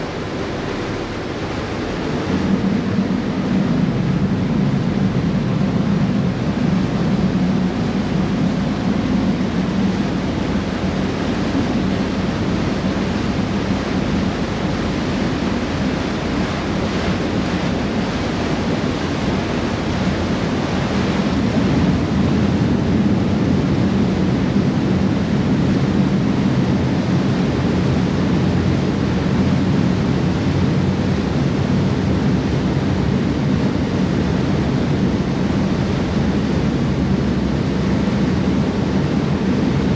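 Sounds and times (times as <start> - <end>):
ferry engine drone: 0.0 - 39.9
water rushing along hull: 0.0 - 39.9
wind buffeting microphone: 0.0 - 39.9.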